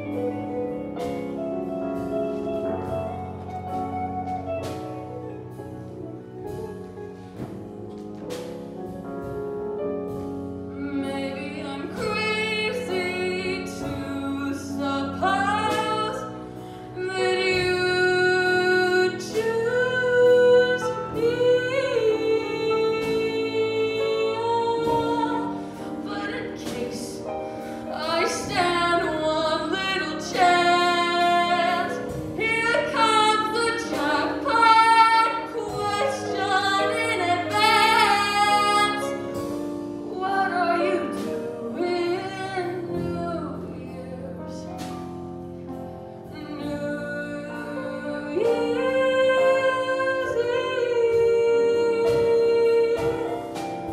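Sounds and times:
small band accompaniment: 0.0 - 53.9
woman singing slow song: 10.8 - 39.4, 40.0 - 44.9, 46.3 - 53.9.

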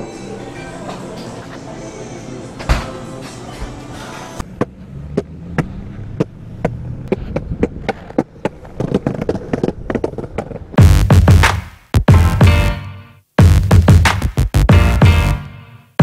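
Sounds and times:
longboard wheels rumbling on concrete: 4.6 - 10.8
wheels clacking over pavement joints: 4.6 - 10.8.

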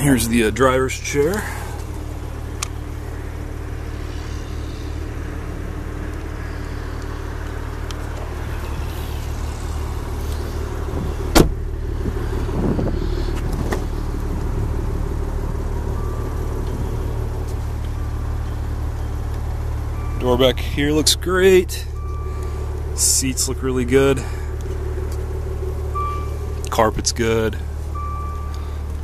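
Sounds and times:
low rumble: 0.0 - 29.0
car door thump: 11.0 - 11.6.

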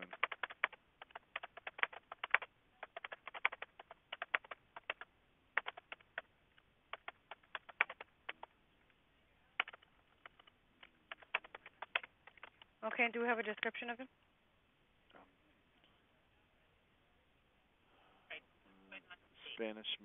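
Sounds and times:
keyboard typing over telephone: 0.0 - 8.5, 9.6 - 13.8.

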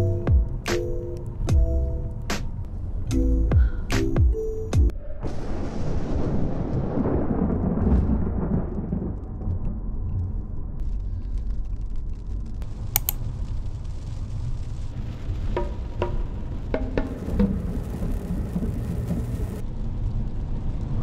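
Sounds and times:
thunder rumbling: 5.2 - 11.6, 12.6 - 21.0
sharp click: 13.0 - 13.2
car driving on highway: 15.2 - 21.0.

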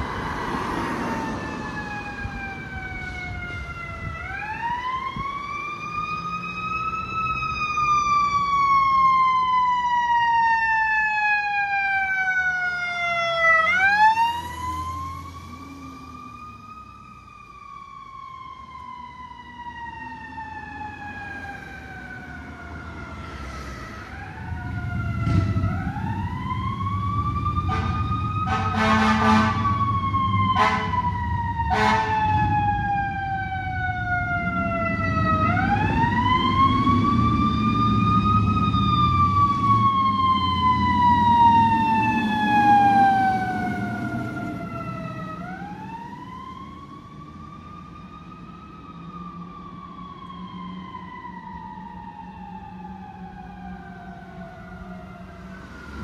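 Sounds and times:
fire truck sirens wailing: 0.0 - 56.0
heavy truck engines rumbling: 0.0 - 56.0
short horn blasts: 27.7 - 29.6, 30.6 - 31.0, 31.7 - 32.1.

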